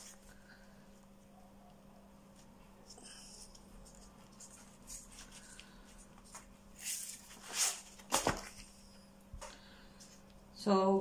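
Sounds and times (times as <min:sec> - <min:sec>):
baking paper rustling: 0:02.4 - 0:08.8.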